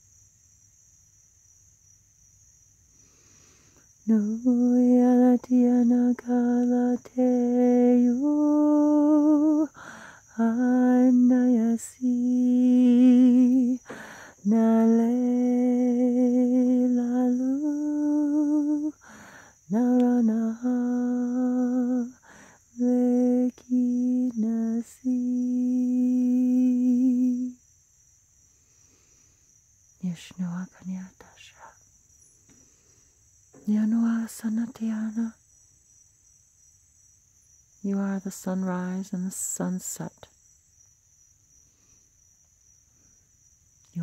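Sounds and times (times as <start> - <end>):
woman singing wordless held notes: 4.1 - 27.6, 30.0 - 31.7, 33.6 - 35.4, 37.9 - 40.3.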